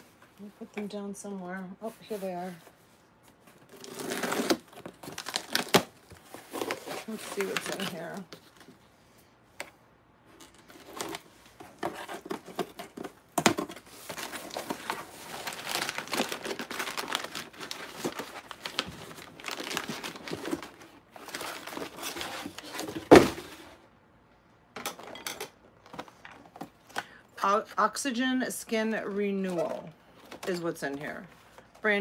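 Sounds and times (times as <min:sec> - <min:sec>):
packaging crinkling and tearing: 0:03.6 - 0:08.7, 0:10.4 - 0:22.9.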